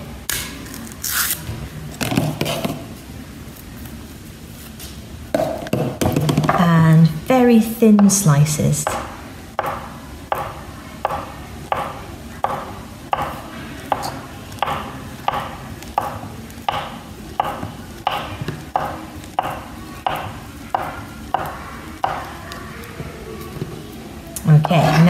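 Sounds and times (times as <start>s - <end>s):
knife tapping chopping board: 8.8s - 22.3s.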